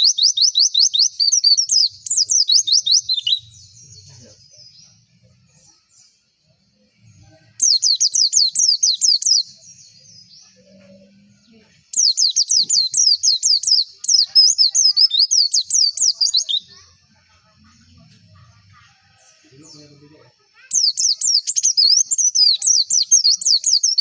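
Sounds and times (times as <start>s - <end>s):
bird chirping high sweeps: 20.7s - 24.0s.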